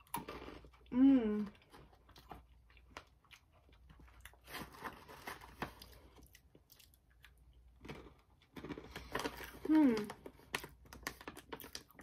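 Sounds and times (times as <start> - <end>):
person chewing crunchy food: 0.0 - 12.0.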